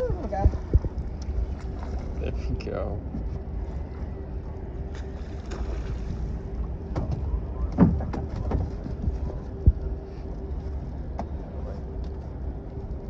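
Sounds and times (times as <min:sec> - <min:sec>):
faint hum: 0:00.0 - 0:13.0
steady low rumble: 0:00.0 - 0:13.0
fish bumping in boat: 0:04.8 - 0:09.8.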